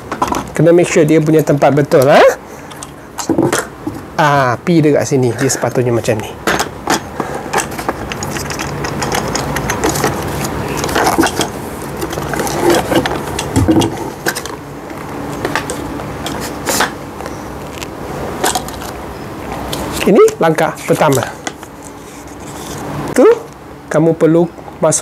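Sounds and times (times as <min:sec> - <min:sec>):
plastic and metal parts scraping: 0:06.5 - 0:14.6, 0:15.2 - 0:22.9.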